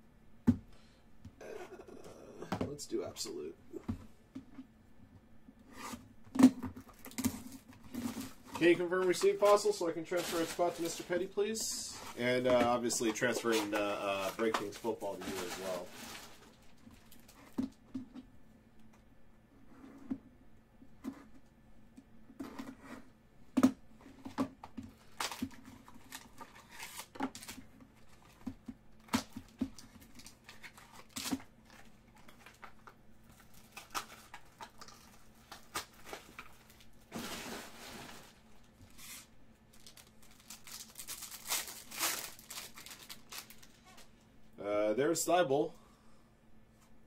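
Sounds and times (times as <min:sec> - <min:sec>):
plastic wrap crinkling: 0:06.8 - 0:17.6, 0:29.4 - 0:44.1
wrapper tearing: 0:29.8 - 0:38.3, 0:38.9 - 0:44.0.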